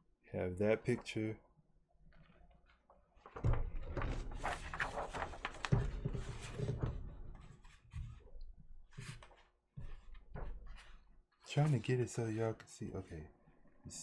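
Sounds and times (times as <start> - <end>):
paper rustling and crinkling: 2.1 - 8.2.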